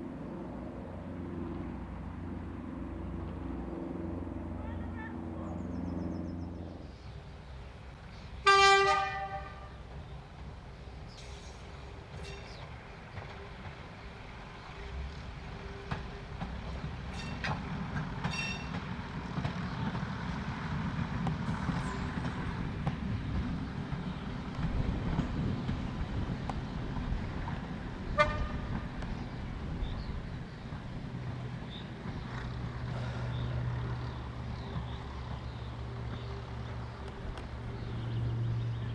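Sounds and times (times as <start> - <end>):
train rumble: 0.0 - 38.9.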